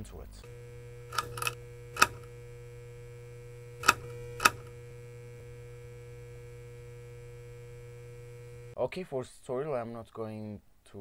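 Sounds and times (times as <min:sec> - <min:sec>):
neon sign humming: 0:00.0 - 0:08.8.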